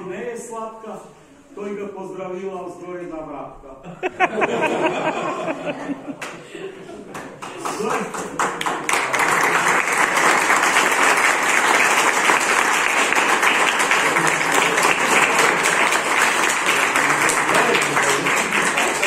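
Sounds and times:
crowd applauding: 4.3 - 19.0.

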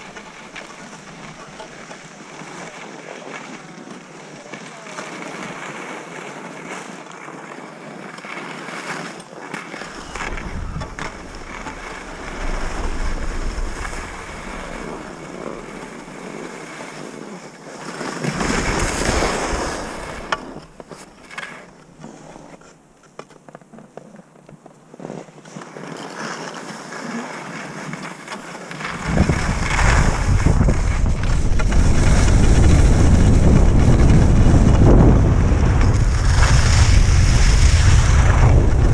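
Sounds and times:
skis scraping over snow: 0.0 - 38.9
wind buffeting microphone: 9.8 - 16.8, 18.3 - 20.8, 28.9 - 38.9.

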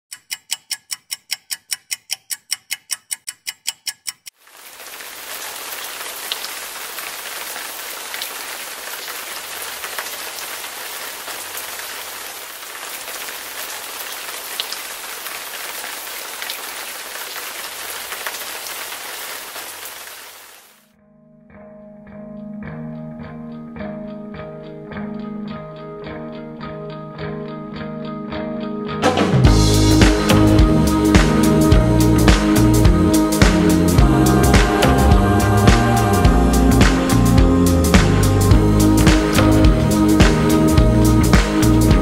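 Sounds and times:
rapid clock-like ticking: 0.1 - 4.4
raindrop ticks: 0.1 - 19.8
rain hissing: 4.4 - 20.8, 29.5 - 42.0.

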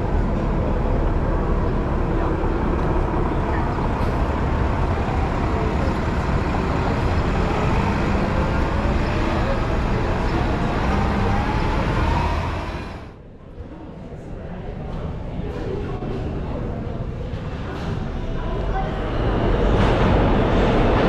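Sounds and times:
bus engine driving off: 0.0 - 13.2
cars passing: 0.0 - 13.2.

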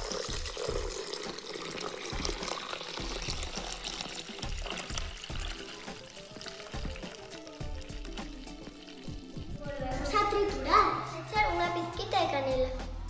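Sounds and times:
water pouring into metal bowl: 0.0 - 9.8
background music with beat: 0.0 - 13.0.

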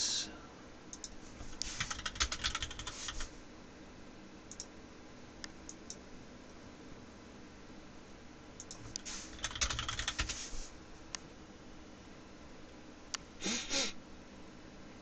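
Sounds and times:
computer keyboard typing: 1.0 - 3.3, 8.6 - 10.6.

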